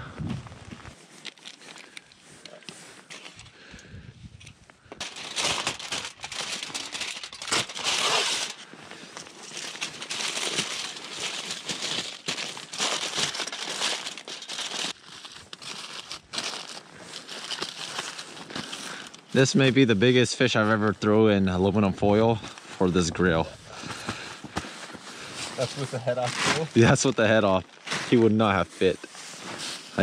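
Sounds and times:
aluminum foil crinkling: 1.0s - 3.6s, 5.0s - 19.9s.

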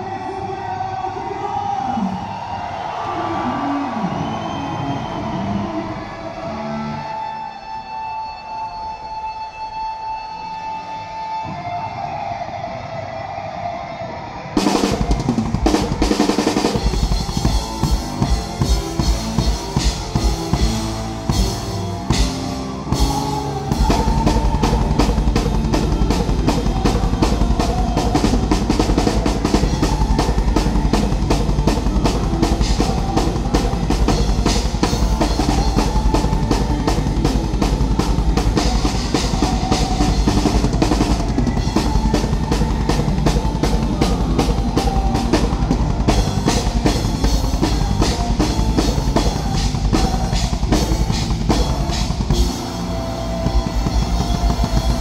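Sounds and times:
live heavy metal band: 9.6s - 55.0s
drum hits: 14.6s - 55.0s
fast bass drum beat: 14.6s - 55.0s.

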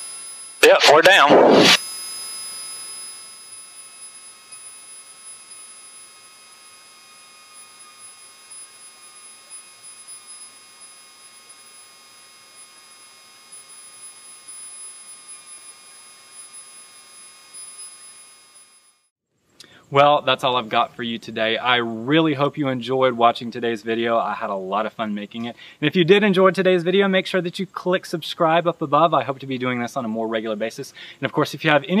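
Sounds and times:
electrical hum and whine: 0.0s - 18.9s.

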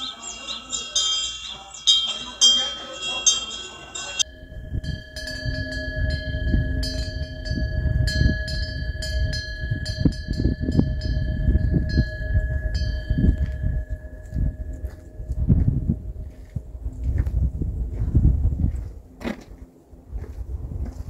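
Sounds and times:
wind bell ringing: 0.0s - 17.0s
wind rumble on microphone: 4.2s - 21.0s.

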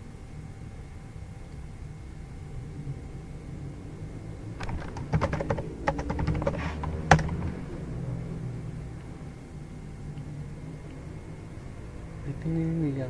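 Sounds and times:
typing on computer keyboard: 4.6s - 7.6s.

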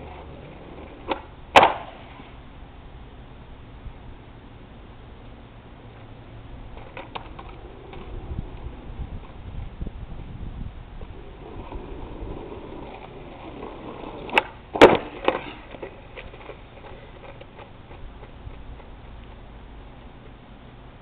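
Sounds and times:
skateboard slapping and clattering: 0.0s - 2.2s, 6.7s - 9.4s, 11.1s - 19.1s
skateboard wheels rolling on asphalt: 0.0s - 21.0s
skateboard tail pop: 0.9s - 2.2s, 12.6s - 18.6s.

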